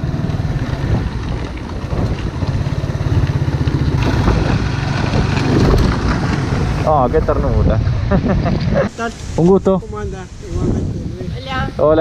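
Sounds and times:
motorcycle engine running: 0:00.0 - 0:08.7.

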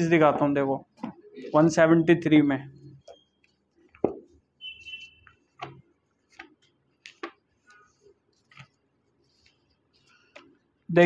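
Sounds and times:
pages being turned: 0:05.6 - 0:10.6.

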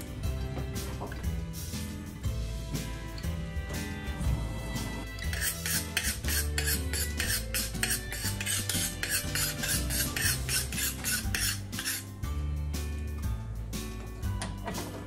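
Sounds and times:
background music: 0:00.0 - 0:15.0
knife scraping on sharpening steel: 0:05.2 - 0:12.1.

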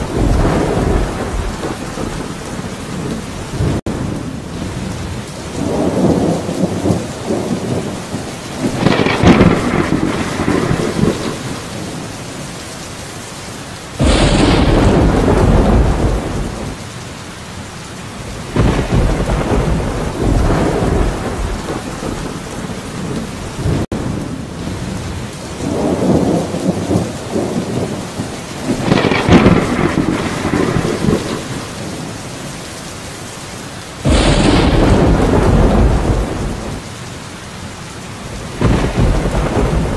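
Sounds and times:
loud thunderclap: 0:00.0 - 0:04.2, 0:05.6 - 0:12.1, 0:14.0 - 0:16.8, 0:18.5 - 0:24.2, 0:25.6 - 0:32.1, 0:34.0 - 0:36.8, 0:38.3 - 0:39.9
rolling thunder: 0:00.0 - 0:12.5, 0:14.0 - 0:16.8, 0:18.3 - 0:32.2, 0:34.0 - 0:36.9, 0:38.2 - 0:39.9
heavy rain: 0:00.0 - 0:39.9.

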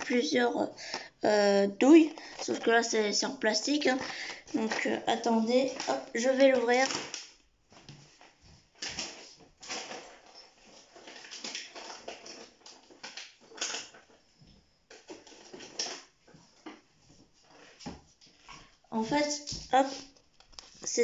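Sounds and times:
plastic packaging crinkling: 0:01.8 - 0:14.2, 0:14.9 - 0:16.8.

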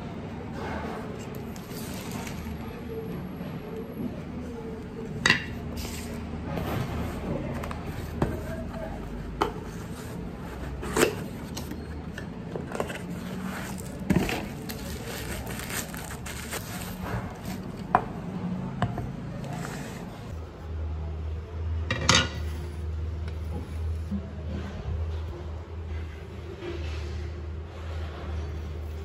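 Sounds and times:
cardboard rustling and scraping: 0:00.6 - 0:02.7, 0:05.7 - 0:18.1, 0:19.0 - 0:20.4.

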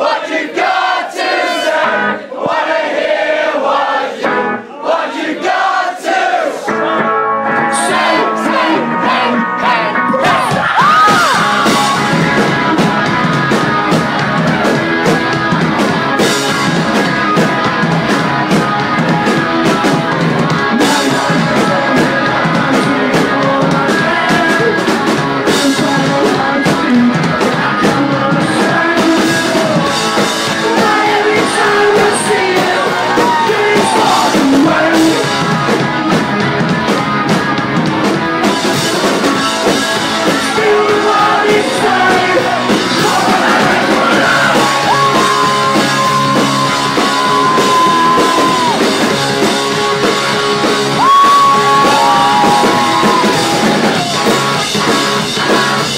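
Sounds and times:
rock band playing: 0:00.6 - 0:02.2, 0:04.2 - 0:04.7, 0:06.6 - 0:55.9
man singing: 0:06.7 - 0:10.8, 0:20.5 - 0:35.6, 0:40.2 - 0:48.7.

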